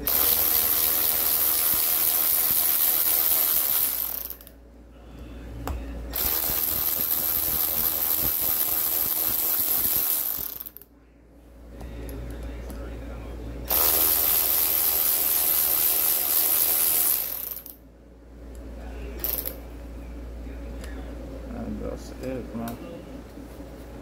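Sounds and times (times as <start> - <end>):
cordless power tool spinning: 0.0 - 4.5, 6.1 - 10.8, 13.7 - 17.8, 19.2 - 19.6.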